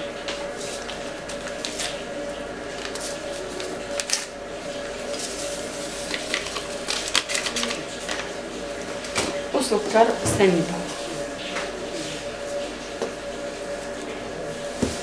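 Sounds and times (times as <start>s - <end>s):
paper sachet crinkling and tearing: 2.7s - 4.3s, 5.1s - 8.3s.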